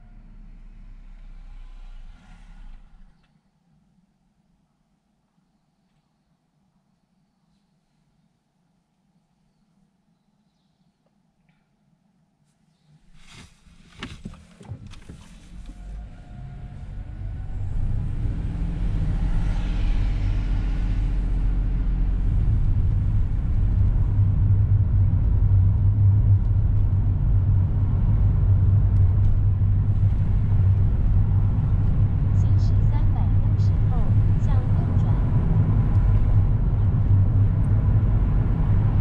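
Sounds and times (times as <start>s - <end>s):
car engine and road rumble: 0.0s - 4.0s, 13.0s - 39.0s.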